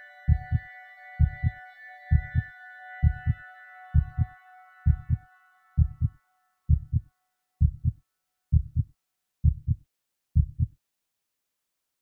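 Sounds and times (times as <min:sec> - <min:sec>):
low heartbeat-like thumps: 0:00.3 - 0:00.6, 0:01.2 - 0:03.4, 0:04.0 - 0:04.3, 0:04.9 - 0:05.2, 0:05.8 - 0:09.8, 0:10.4 - 0:10.8.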